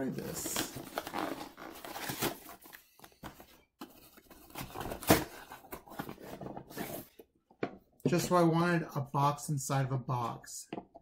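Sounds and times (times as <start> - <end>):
cardboard box tearing: 0.4 - 2.6, 4.4 - 7.1.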